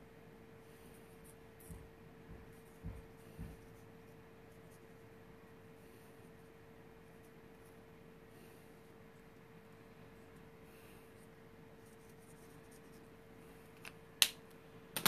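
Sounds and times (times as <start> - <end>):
faint steady hum: 0.0 - 15.0
soft low thumps: 1.7 - 3.8
marker strokes on paper: 11.2 - 13.1.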